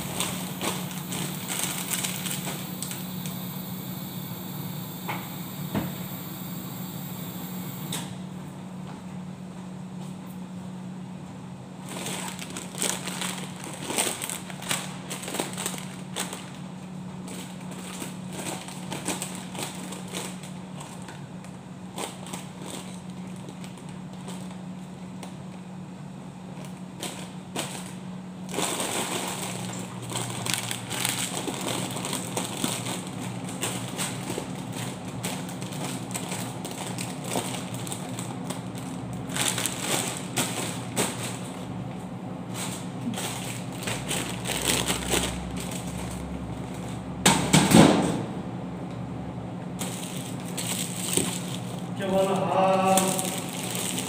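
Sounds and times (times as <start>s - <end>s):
plastic packets crinkling: 0.0s - 3.8s, 11.8s - 24.6s, 26.6s - 41.6s, 42.5s - 46.9s, 49.8s - 54.0s
steady low hum: 0.0s - 54.0s.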